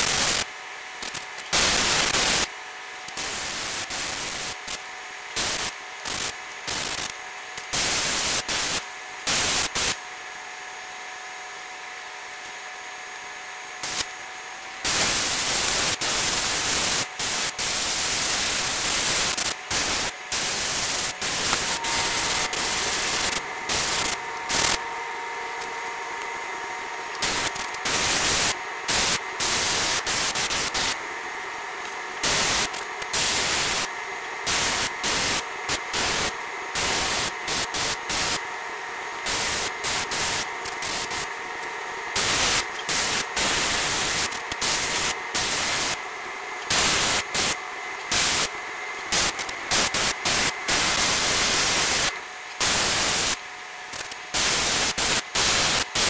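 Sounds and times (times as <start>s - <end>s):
faint steady hum: 0.0s - 55.9s
airbrush spraying hiss: 1.5s - 2.5s, 14.8s - 24.8s, 27.1s - 31.0s, 32.2s - 38.4s, 39.2s - 41.4s, 42.2s - 46.0s, 46.6s - 56.0s.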